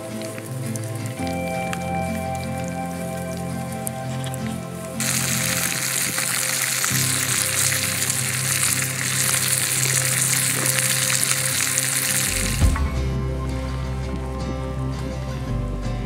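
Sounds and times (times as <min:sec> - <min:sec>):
background music: 0:00.0 - 0:16.0
fish sizzling in a frying pan: 0:05.0 - 0:12.8.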